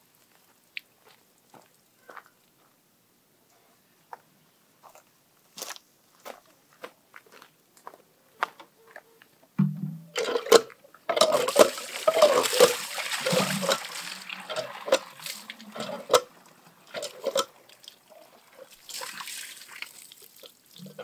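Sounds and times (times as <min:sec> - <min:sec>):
pump handle and jug clanking: 0:09.6 - 0:20.0
water splashing into plastic jug: 0:09.6 - 0:21.0.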